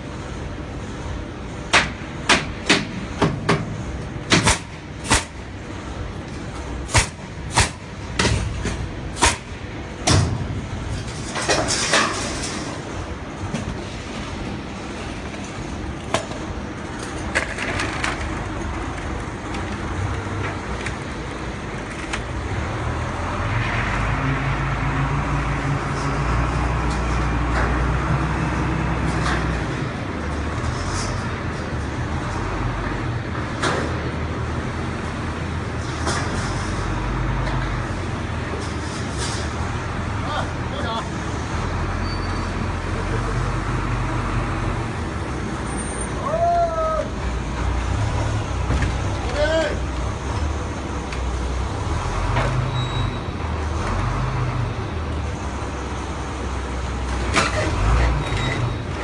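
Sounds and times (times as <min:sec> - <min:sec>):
low engine rumble: 0:00.0 - 0:59.0
nail gun shots: 0:04.3 - 0:05.4, 0:06.9 - 0:08.4, 0:09.2 - 0:09.5.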